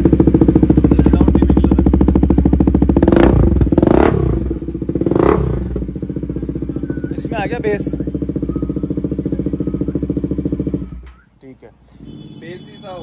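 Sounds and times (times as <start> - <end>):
motorcycle engine idling and revving: 0.0 - 11.3.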